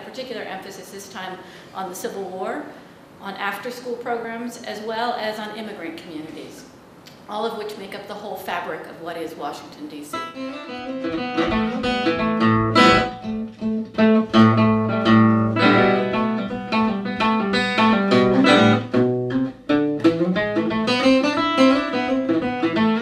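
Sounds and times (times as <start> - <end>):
acoustic guitar jig: 10.2 - 23.0.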